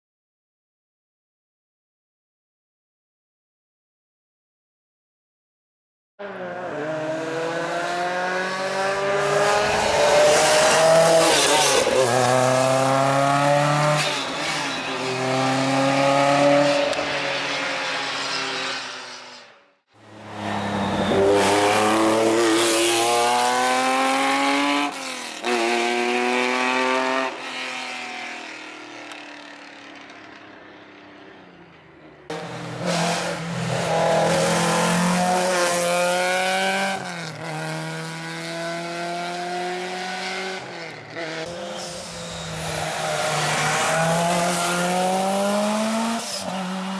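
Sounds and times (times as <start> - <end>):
rally car engines revving: 6.2 - 19.4, 20.0 - 28.0, 32.3 - 46.9.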